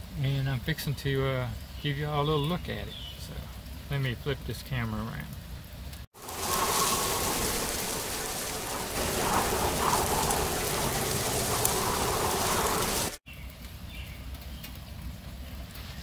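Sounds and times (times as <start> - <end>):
steady rain: 3.2 - 16.0.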